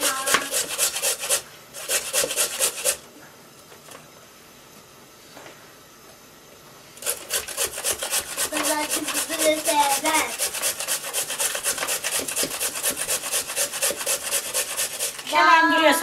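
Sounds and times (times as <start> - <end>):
carrot grating on metal grater: 0.0 - 3.0, 7.0 - 15.5.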